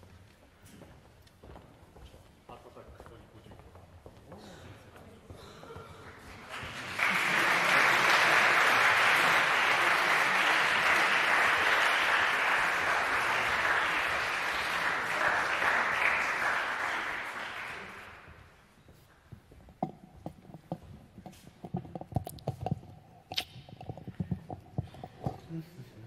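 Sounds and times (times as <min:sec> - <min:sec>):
audience applauding: 0:06.0 - 0:18.5.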